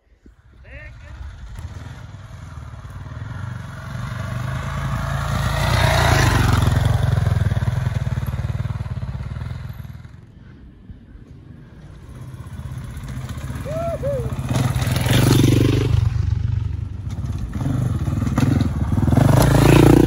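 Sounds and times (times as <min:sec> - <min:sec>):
motorcycle engine running: 0:00.7 - 0:10.3, 0:11.9 - 0:20.0.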